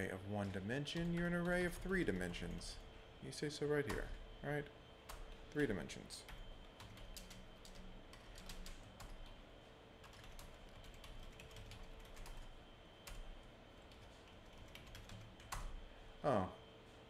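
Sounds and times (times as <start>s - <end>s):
keyboard typing: 5.1s - 9.4s, 10.0s - 15.8s.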